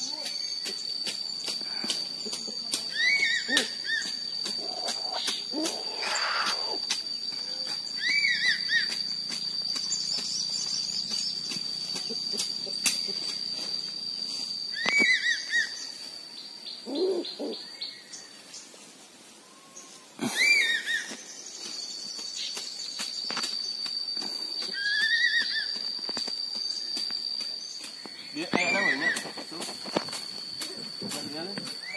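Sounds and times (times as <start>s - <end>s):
eagle calling whistled notes: 2.9s - 12.1s, 14.7s - 16.0s, 19.6s - 22.6s, 23.3s - 27.2s, 27.8s - 31.9s.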